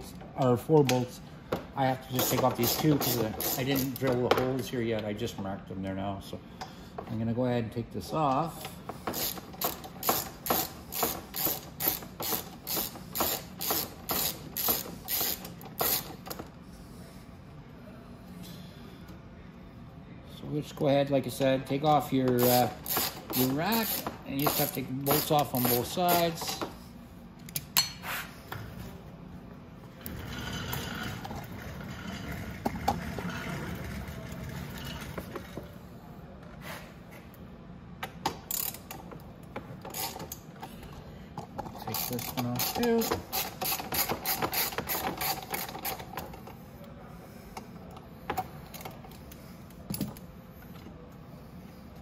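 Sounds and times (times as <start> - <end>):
ratchet tool clicking: 2.2 - 4.1, 9.1 - 16.4, 22.4 - 26.6, 38.5 - 39.0, 41.9 - 46.2.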